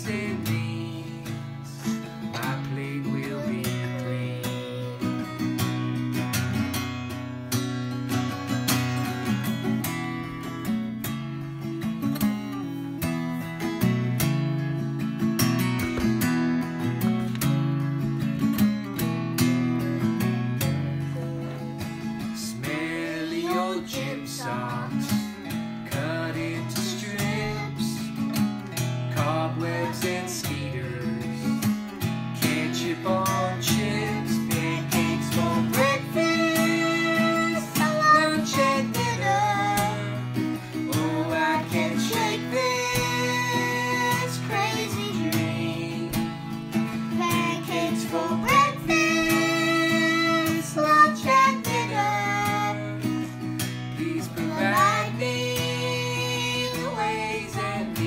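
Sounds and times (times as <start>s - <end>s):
person singing: 0.0s - 5.9s, 21.0s - 28.3s, 29.1s - 31.8s, 32.4s - 58.0s
strummed acoustic guitar: 0.0s - 58.0s.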